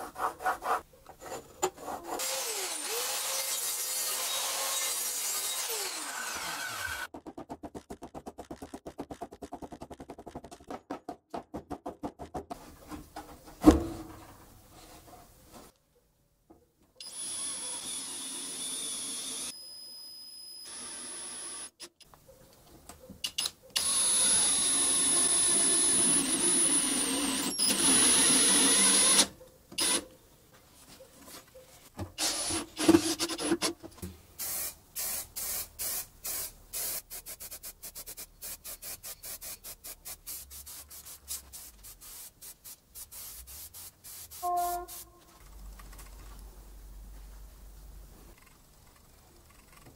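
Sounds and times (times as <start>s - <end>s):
power drill boring into board: 17.0s - 19.5s, 23.8s - 30.0s
spray can rattling: 34.4s - 45.0s.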